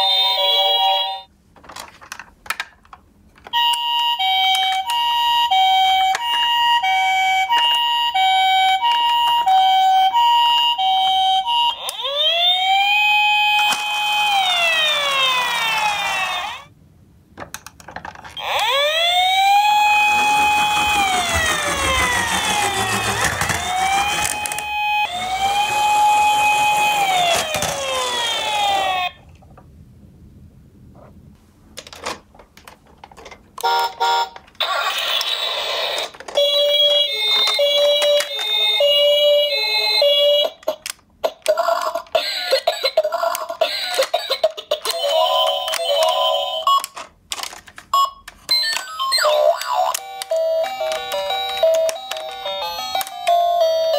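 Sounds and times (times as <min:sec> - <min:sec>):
toy two-tone siren: 0:03.6 - 0:16.6, 0:18.4 - 0:29.2, 0:33.6 - 0:40.8, 0:41.4 - 0:47.0, 0:48.0 - 0:53.9
toy wailing siren: 0:03.6 - 0:16.7, 0:18.4 - 0:29.2, 0:33.6 - 0:47.0, 0:48.0 - 0:53.9.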